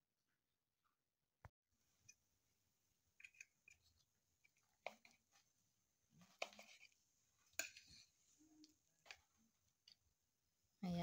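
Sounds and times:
knife scraping on ceramic plate: 6.2 - 8.1.

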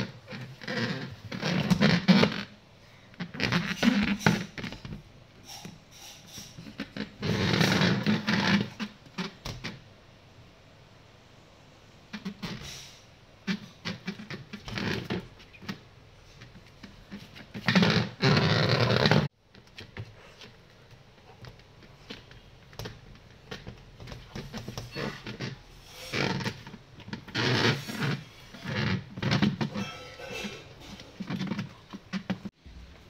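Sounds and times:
puppy scraping and knocking: 21.4 - 32.5
loud rough scraping: 27.3 - 31.7.

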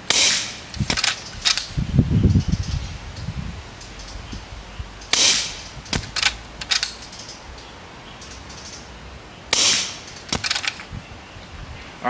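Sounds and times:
air rifle shot: 0.0 - 1.8, 5.1 - 7.0, 9.5 - 10.8
rifle action clicks: 0.1 - 1.8, 5.1 - 7.0, 9.5 - 10.9.

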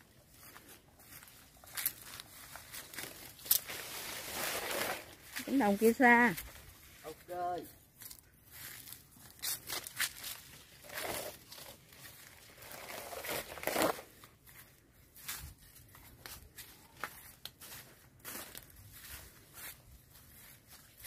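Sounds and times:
footsteps on dirt path: 0.0 - 3.7, 14.0 - 21.0
rustling and crinkling: 0.0 - 7.2, 7.9 - 21.0.

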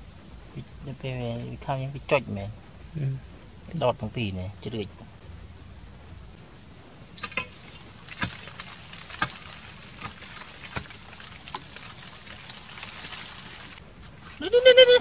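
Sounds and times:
steady hiss: 0.0 - 14.6
digging pole knocking into earth: 7.2 - 12.0.

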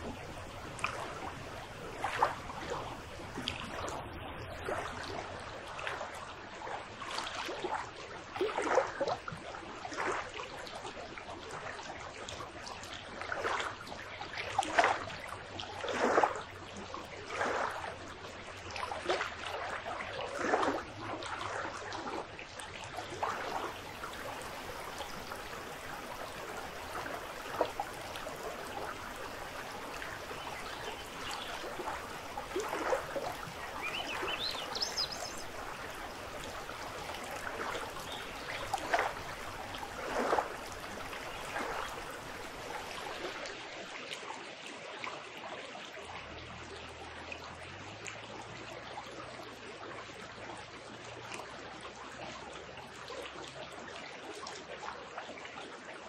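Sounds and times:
river rushing over rocks: 23.4 - 43.2.

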